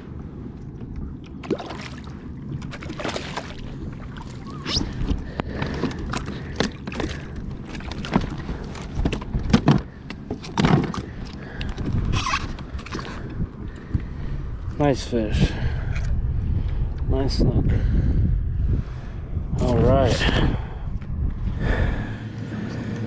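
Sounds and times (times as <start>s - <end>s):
steady low rumble: 0.0s - 23.0s
water splashing and sloshing: 0.5s - 14.2s.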